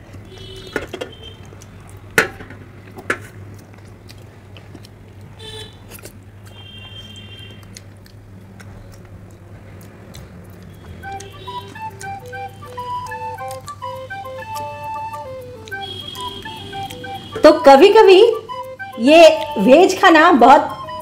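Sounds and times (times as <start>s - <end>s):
sucking and chewing: 1.1s - 17.4s.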